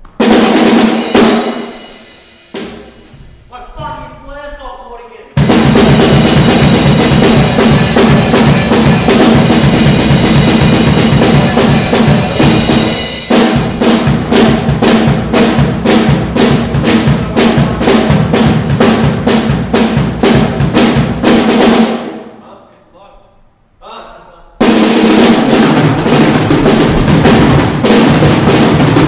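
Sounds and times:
acoustic drum kit playing: 0.0 - 4.6, 5.4 - 22.3, 24.6 - 29.0
crashing cymbals: 0.4 - 3.6, 5.5 - 14.5.

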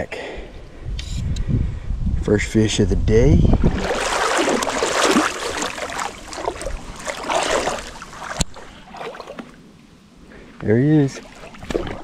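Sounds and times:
river water splashing and sloshing: 3.5 - 12.0.

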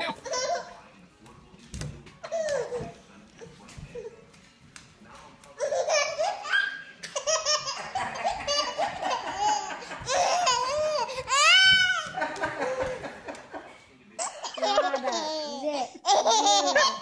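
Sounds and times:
baby laughing: 0.0 - 0.7, 5.6 - 13.0, 14.2 - 17.0.

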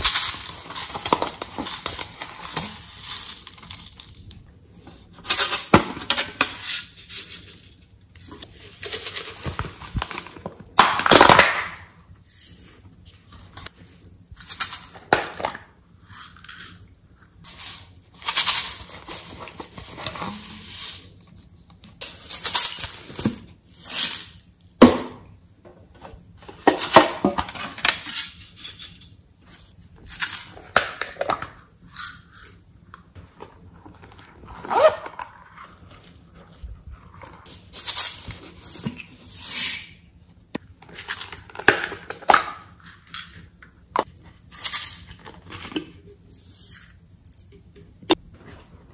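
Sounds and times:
glitter boxes clicking and rattling: 0.0 - 4.3.

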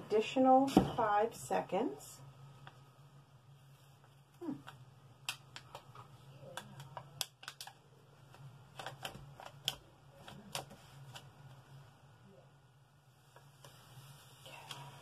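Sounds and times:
low steady hum: 0.0 - 15.0
plastic sheet clicks and crinkles: 4.7 - 11.3.

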